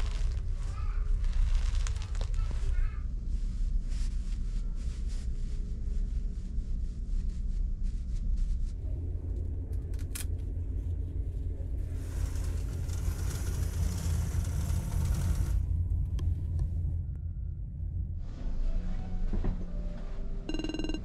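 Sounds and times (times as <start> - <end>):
fabric curtain rustling: 0.0 - 2.8, 11.9 - 15.6.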